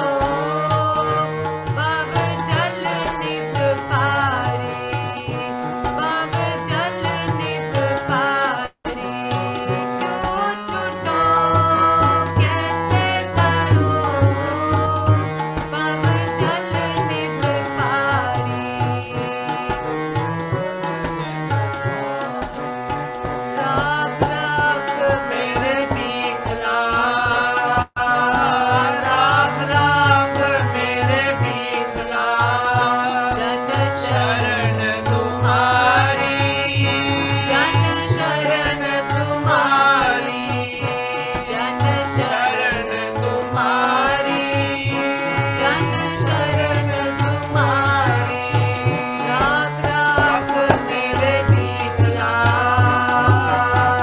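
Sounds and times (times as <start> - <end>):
woman singing a hymn: 0.0 - 19.9, 23.6 - 42.6, 43.2 - 54.0
tabla: 0.0 - 54.0.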